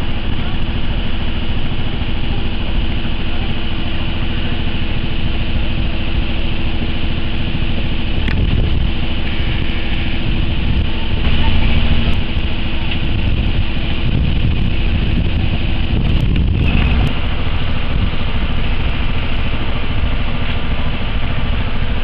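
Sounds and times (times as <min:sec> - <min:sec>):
boat engine humming: 0:00.0 - 0:22.0
wind on microphone: 0:00.0 - 0:22.0.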